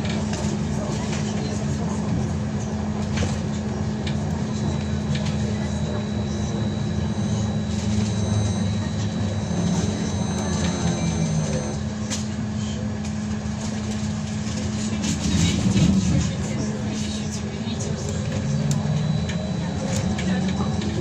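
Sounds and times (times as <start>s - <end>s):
trolleybus electric hum: 0.0s - 21.0s
thin high whine: 4.6s - 11.9s.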